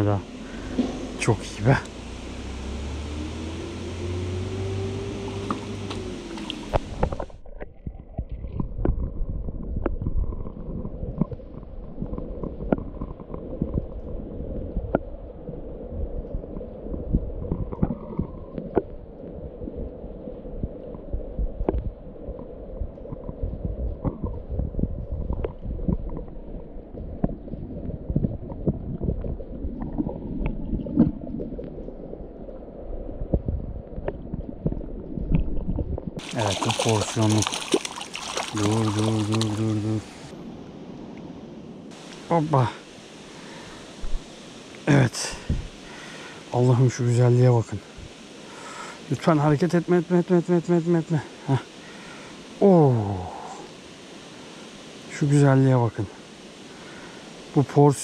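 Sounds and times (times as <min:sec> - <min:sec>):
stream hiss: 0:00.0 - 0:07.5, 0:36.2 - 0:58.0
muffled underwater water rumble: 0:00.0 - 0:58.0
underwater clicks and pops: 0:05.4 - 0:14.0, 0:14.8 - 0:15.1, 0:17.1 - 0:19.0, 0:21.6 - 0:26.4, 0:27.1 - 0:32.0, 0:33.3 - 0:36.2.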